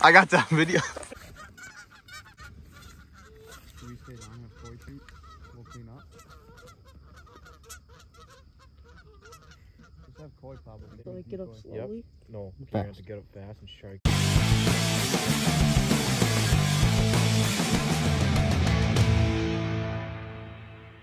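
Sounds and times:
geese honking and clucking: 0:00.0 - 0:11.3.

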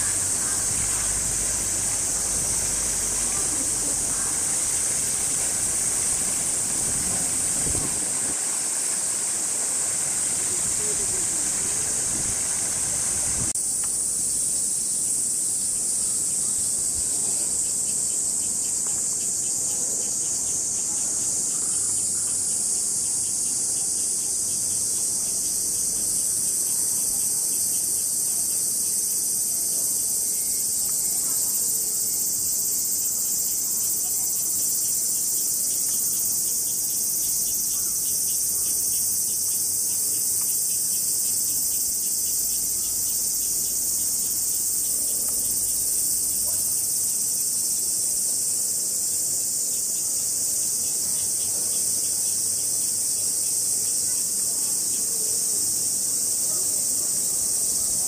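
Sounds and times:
cicadas chorus: 0:00.0 - 0:58.0.

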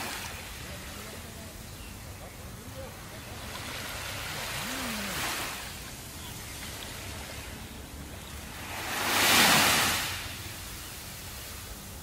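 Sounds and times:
small waves washing on sand: 0:00.0 - 0:12.0.

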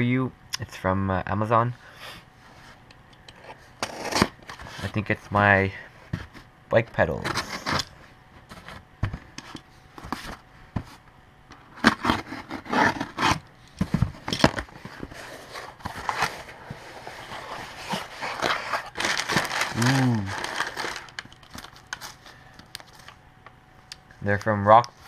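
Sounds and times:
cardboard box tape tearing: 0:03.8 - 0:04.4, 0:11.8 - 0:13.5, 0:17.4 - 0:21.2
packing paper rustling: 0:14.4 - 0:23.2.

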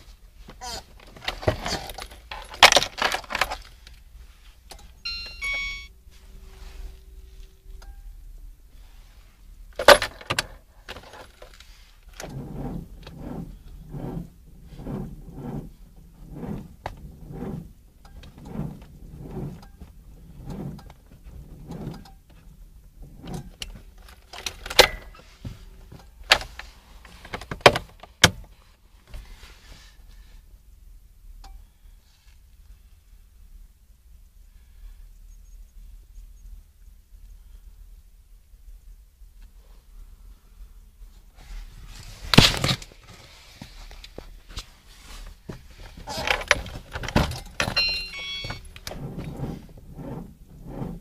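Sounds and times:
short electronic tone: 0:05.0 - 0:08.2, 0:47.7 - 0:48.7.

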